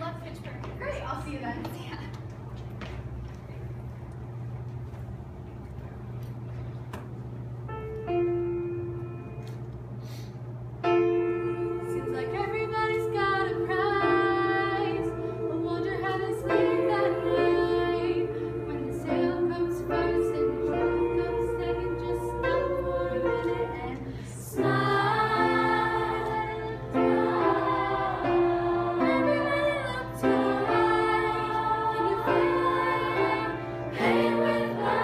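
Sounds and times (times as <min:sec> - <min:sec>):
girls singing a cappella: 0:11.3 - 0:35.0.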